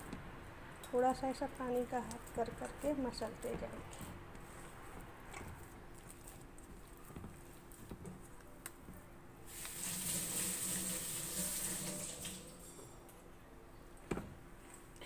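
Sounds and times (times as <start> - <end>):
hands kneading dough: 0.0 - 9.9
steady hiss with low hum: 0.0 - 15.0.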